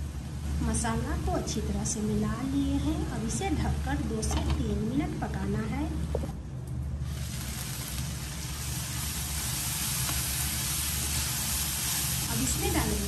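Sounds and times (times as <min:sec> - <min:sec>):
food frying hiss: 0:07.0 - 0:13.0.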